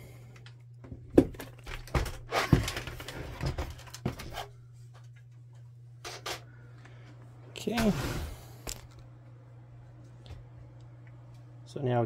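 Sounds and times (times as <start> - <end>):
plastic printer knocking and clunking: 0.9 - 4.2.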